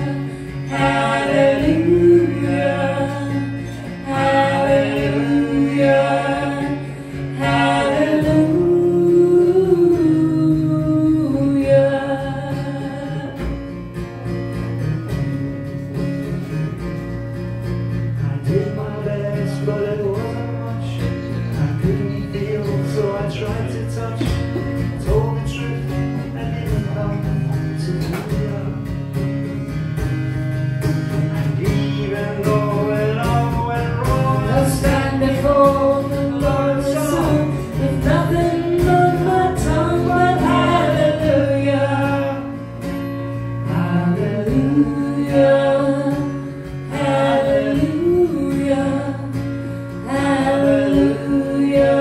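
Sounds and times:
person singing: 0.0 - 13.6, 31.1 - 42.6, 50.0 - 52.0
acoustic guitar: 0.0 - 52.0.

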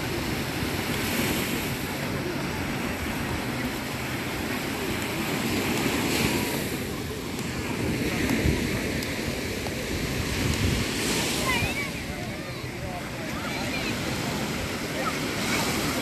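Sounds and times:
surf breaking on shore: 0.0 - 16.0
wind buffeting microphone: 7.0 - 13.2.

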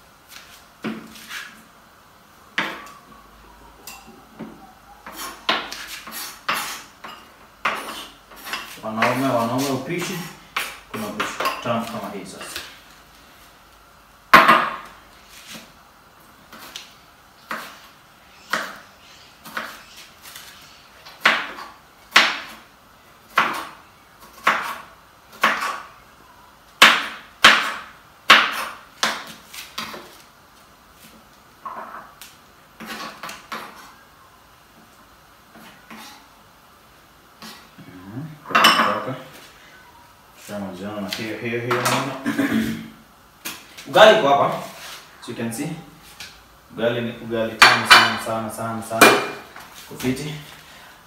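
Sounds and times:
knife chopping on wooden board: 21.2 - 22.6, 23.3 - 24.8, 25.4 - 25.8, 26.8 - 30.0.

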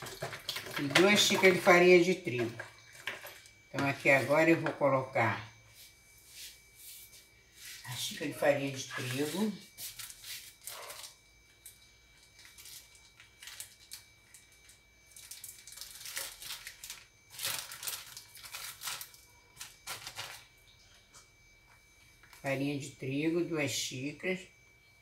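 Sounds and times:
plastic packaging crinkling: 9.9 - 11.2, 12.2 - 20.5.

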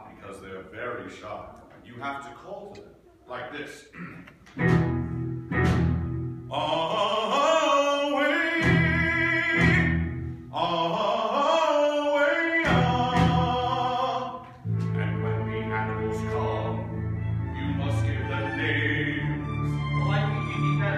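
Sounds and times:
man singing operatically: 6.5 - 20.9.

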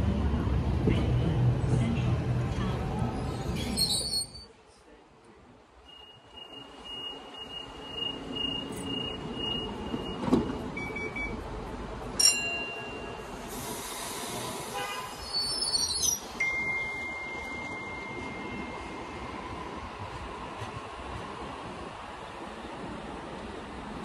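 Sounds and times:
train doors knocking shut: 9.8 - 10.7
air hiss: 13.4 - 15.4.

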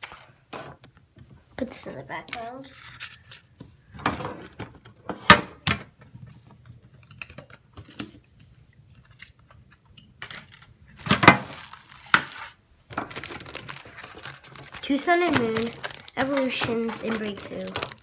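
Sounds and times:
cards tapping and clacking: 14.0 - 18.0.

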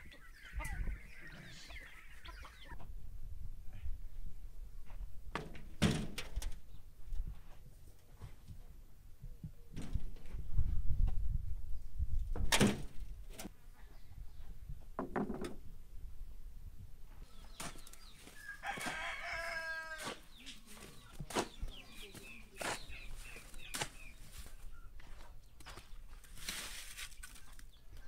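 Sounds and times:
chicken clucks: 0.0 - 2.9
rooster crowing: 18.4 - 20.2.

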